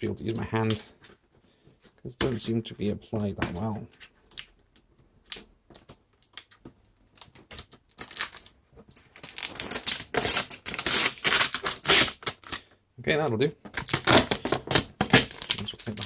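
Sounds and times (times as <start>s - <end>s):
packaging being peeled: 7.9s - 12.6s, 13.8s - 16.0s.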